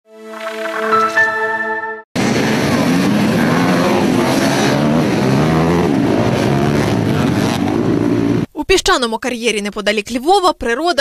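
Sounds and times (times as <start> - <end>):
chiming jingle: 0.8 - 2.0
dirt bikes revving: 2.2 - 8.5.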